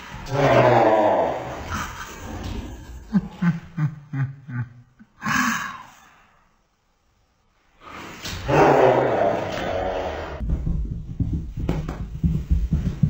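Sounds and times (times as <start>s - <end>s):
person laughing: 1.7s - 5.6s.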